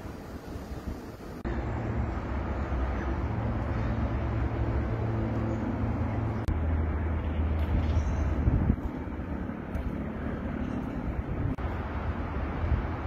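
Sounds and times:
wind on microphone: 7.6 - 13.0.

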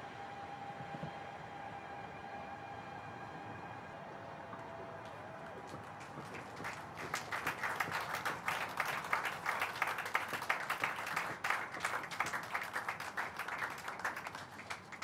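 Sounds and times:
people applauding: 4.6 - 15.0.

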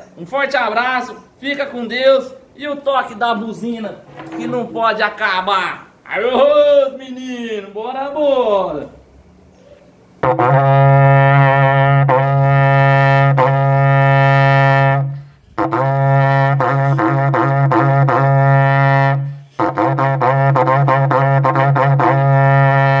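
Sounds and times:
ox horn blasts with warbling pitch: 10.2 - 23.0
person breathing: 15.2 - 15.6.

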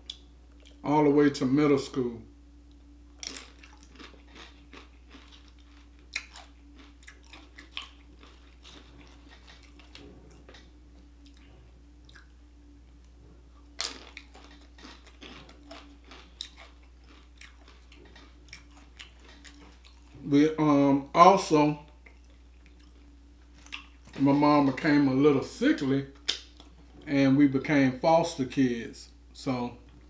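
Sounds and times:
chewing tortilla chips: 2.8 - 12.4, 13.0 - 20.3, 21.9 - 24.3.

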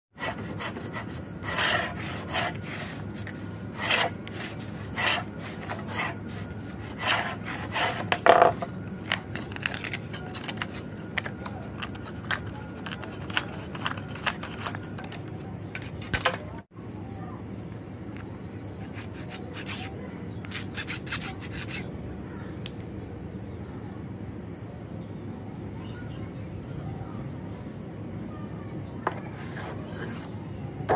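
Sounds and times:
steel point scraping wood: 0.2 - 15.1, 18.8 - 21.9, 29.3 - 30.3
steady low hum: 0.2 - 30.9.

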